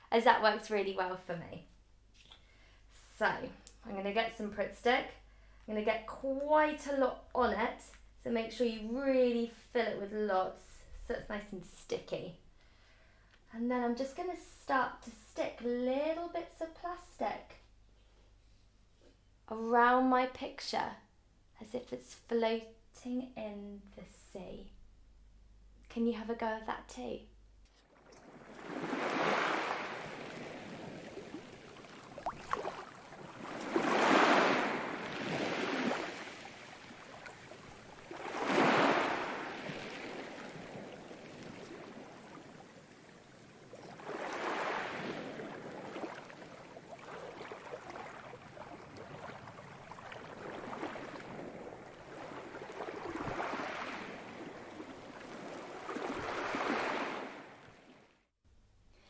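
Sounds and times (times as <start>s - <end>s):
ocean waves washing: 27.9s - 58.1s.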